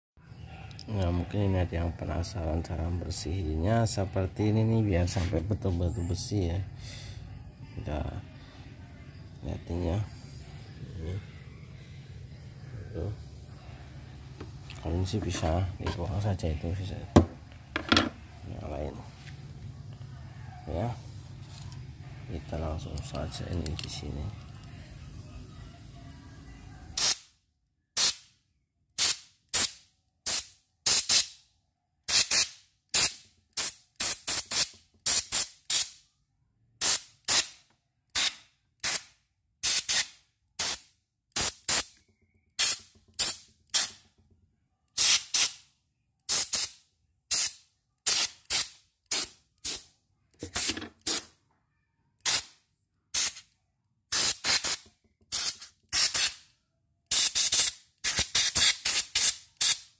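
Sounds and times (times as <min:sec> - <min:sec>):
compressed air hissing bursts: 0:42.6 - 0:44.0, 0:52.2 - 0:52.5, 0:53.2 - 0:53.4.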